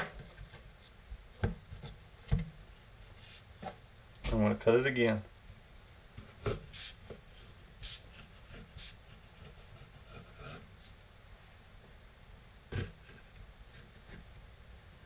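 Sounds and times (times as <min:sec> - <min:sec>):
knife scraping through dough: 0:07.8 - 0:11.0.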